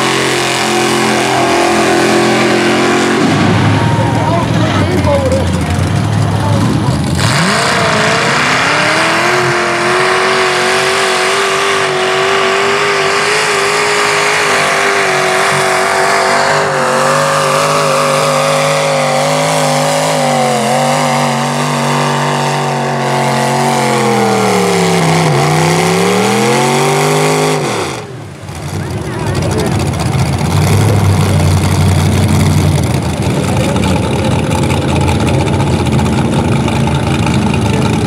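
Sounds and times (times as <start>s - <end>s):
truck engine at high revs: 0.0s - 38.0s.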